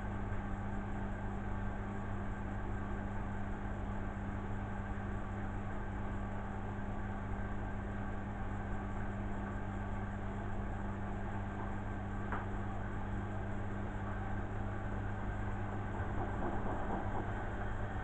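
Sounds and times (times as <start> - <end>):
washing machine humming: 8.4 - 18.0.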